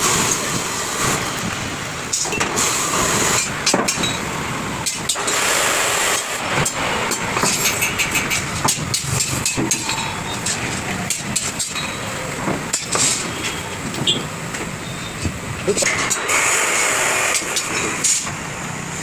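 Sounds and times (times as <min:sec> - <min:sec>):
arc welding crackling: 0:00.0 - 0:19.0
steel sections clanking: 0:02.1 - 0:18.4.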